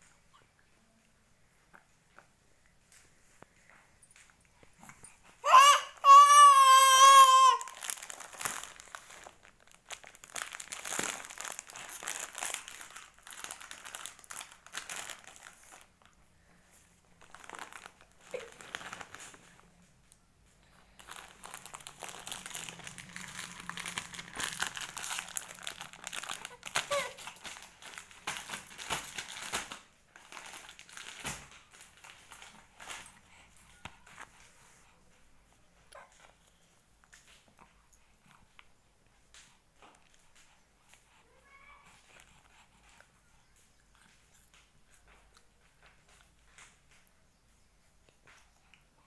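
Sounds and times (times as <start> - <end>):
crinkling and rustling: 1.6 - 47.3
baby squealing: 5.4 - 7.9, 26.4 - 27.2.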